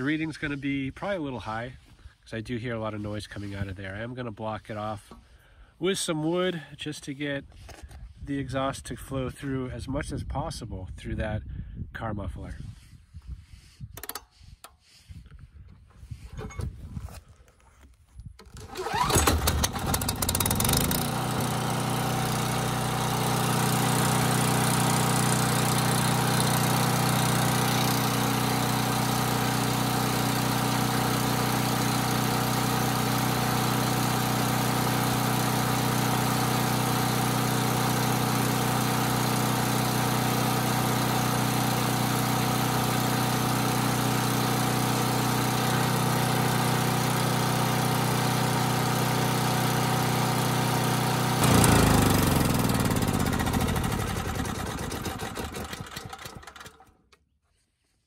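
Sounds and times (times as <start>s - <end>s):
generator engine running: 18.6s - 56.9s.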